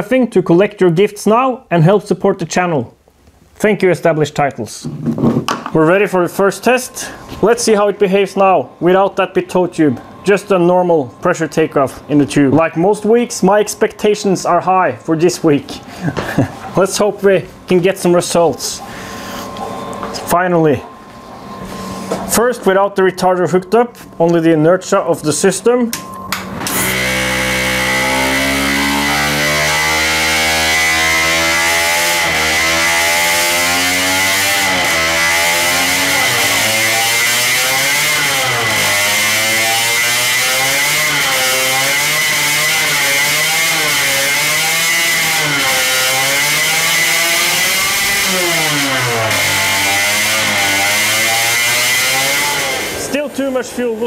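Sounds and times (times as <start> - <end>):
steady high whine: 4.4 - 54.0
small engine revving: 26.6 - 53.1.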